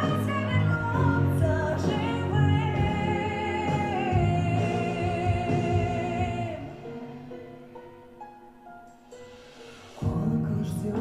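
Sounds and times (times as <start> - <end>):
woman singing a slow ballad: 0.0 - 6.9
music accompaniment: 0.0 - 11.0.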